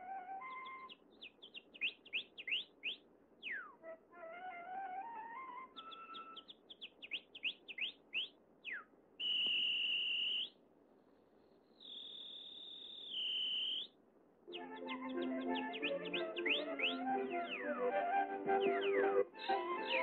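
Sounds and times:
whistled bird song: 0.0 - 10.6, 11.4 - 20.0
band music: 14.6 - 20.0
flute rising note: 14.6 - 20.0.

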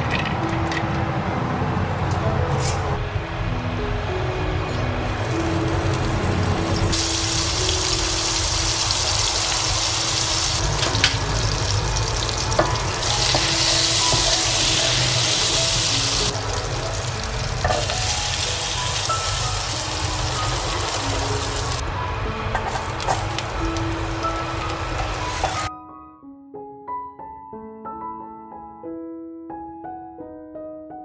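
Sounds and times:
butter sizzling in frying pan: 5.0 - 21.8, 22.5 - 25.7.

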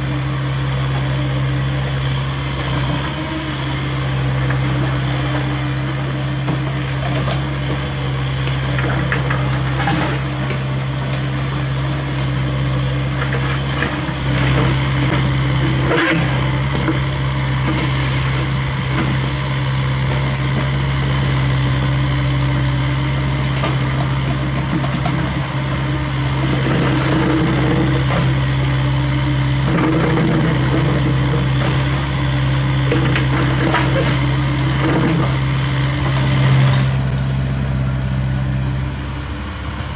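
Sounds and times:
diesel engine droning: 0.0 - 39.9.

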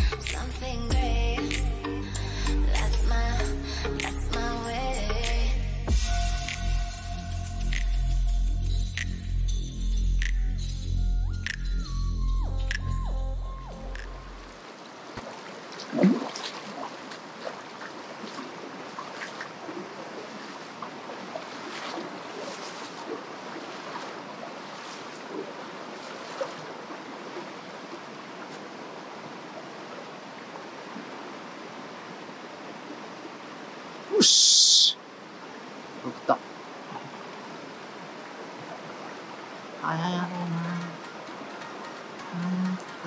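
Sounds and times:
river water flowing over stones: 14.0 - 43.0
small ticks: 40.4 - 43.0.

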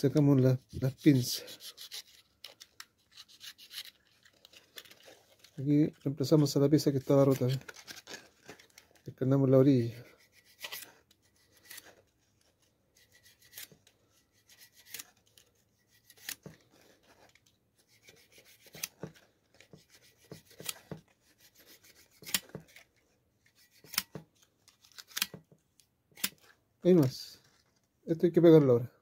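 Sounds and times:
knife scraping leather: 0.8 - 4.4, 10.0 - 12.0, 13.0 - 17.1, 17.9 - 22.9, 23.5 - 24.1.

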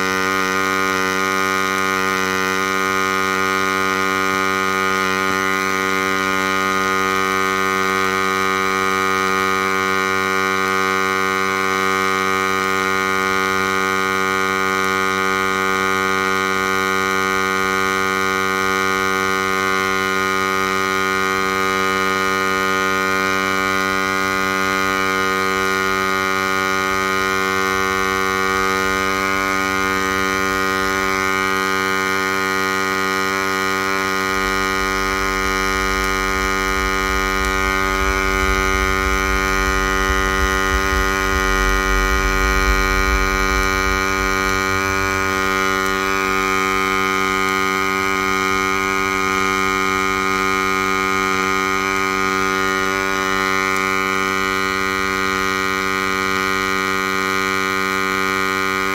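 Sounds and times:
welding electrical hum: 0.0 - 58.9
deep rumble: 25.5 - 55.2.

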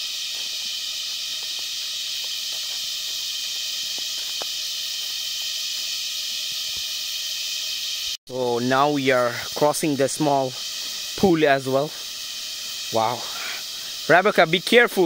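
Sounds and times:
insect chorus hissing: 0.0 - 15.0.

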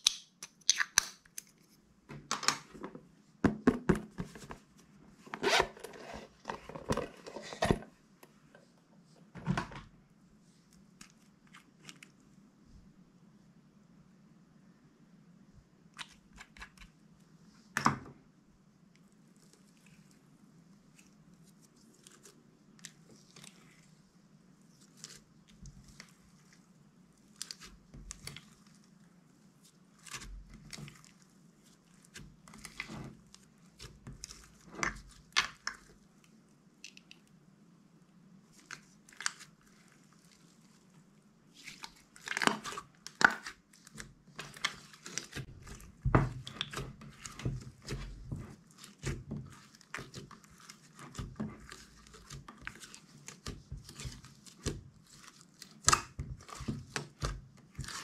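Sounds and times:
sticky slime pops and crackles: 0.0 - 1.4.

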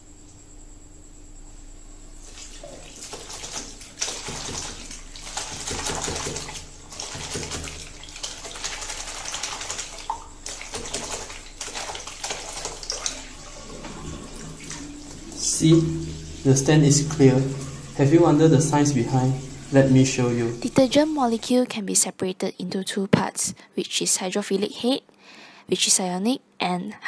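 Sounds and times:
wet cloth splashing: 2.2 - 21.4
tap water running into sink: 2.2 - 21.5.

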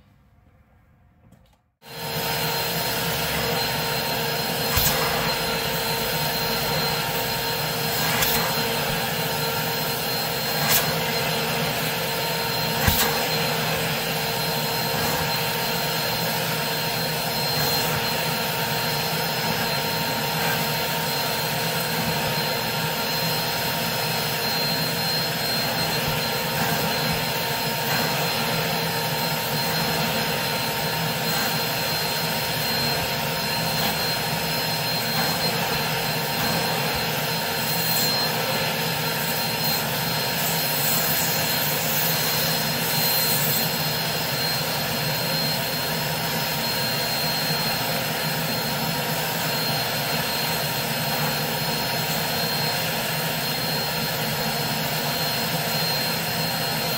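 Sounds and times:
extractor vacuum whining: 1.3 - 56.9
suction rushing through wand: 1.9 - 45.9.

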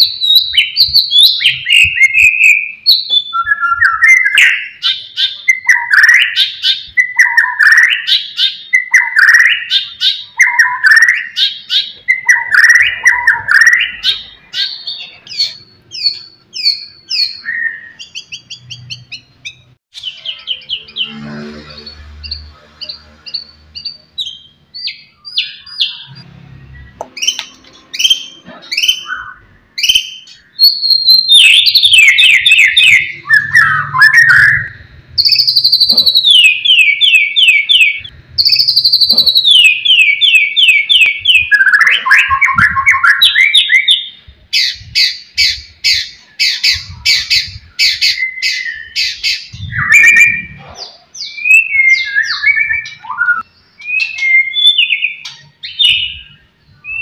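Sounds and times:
songbird singing: 0.0 - 57.0.

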